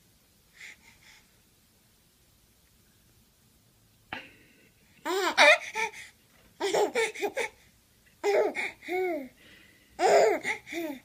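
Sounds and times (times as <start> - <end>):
baby giggling: 5.0 - 6.0, 6.6 - 7.6, 8.2 - 9.3, 10.0 - 11.0.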